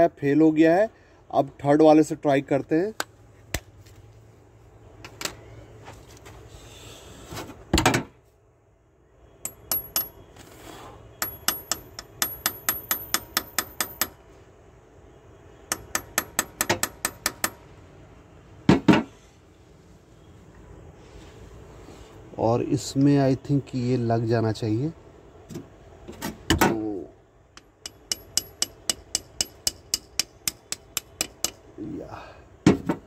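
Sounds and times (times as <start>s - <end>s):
hammer tapping on metal: 9.4s - 10.2s, 11.2s - 14.2s, 15.7s - 17.6s, 27.6s - 31.6s.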